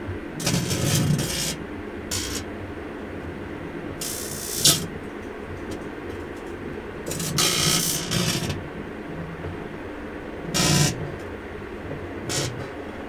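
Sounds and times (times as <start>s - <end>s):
microwave fan hum: 0.0s - 13.0s
crackling electrical spark zaps: 0.4s - 2.5s, 4.0s - 4.9s, 7.1s - 8.6s, 10.5s - 11.2s, 12.3s - 12.7s.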